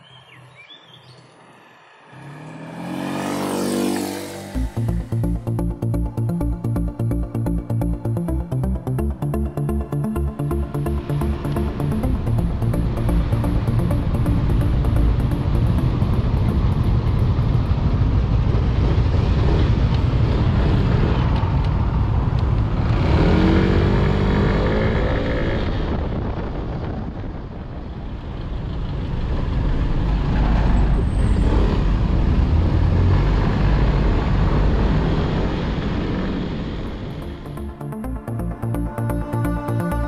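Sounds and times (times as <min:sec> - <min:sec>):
scooter engine running: 0:02.4 - 0:08.6, 0:11.0 - 0:21.1
wind rumble on microphone: 0:15.4 - 0:37.1.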